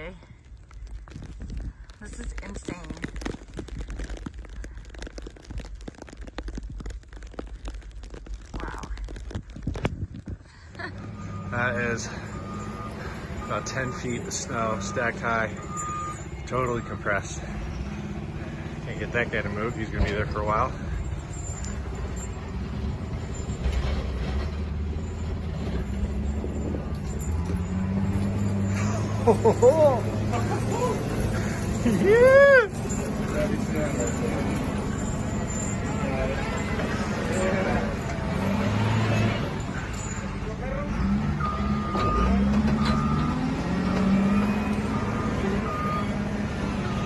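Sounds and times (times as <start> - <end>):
wind buffeting microphone: 0.3 - 10.8
diesel engine under load: 10.6 - 47.0.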